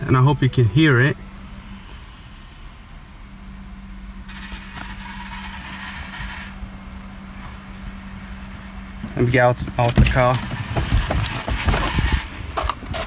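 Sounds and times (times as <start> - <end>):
steady low hum: 0.0 - 13.0
actuator scraping mechanical whir: 4.2 - 7.8, 9.2 - 13.0.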